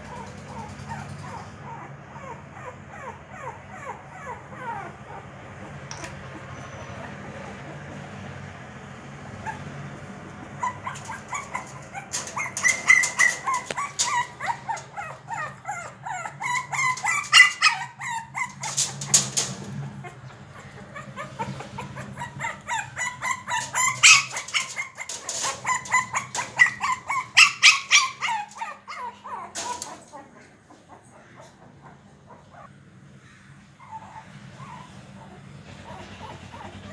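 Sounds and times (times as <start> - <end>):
puppy yipping and whimpering: 0.0 - 8.2, 9.3 - 32.8, 33.8 - 36.9.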